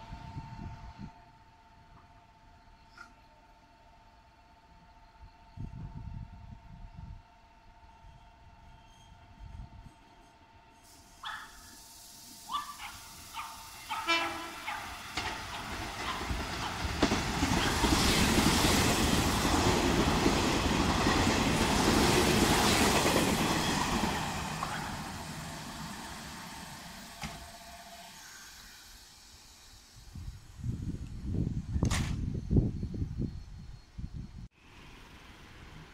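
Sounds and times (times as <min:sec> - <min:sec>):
train wheel and rail noise: 0:00.0 - 0:35.9
train horn: 0:13.8 - 0:14.9, 0:27.0 - 0:28.3.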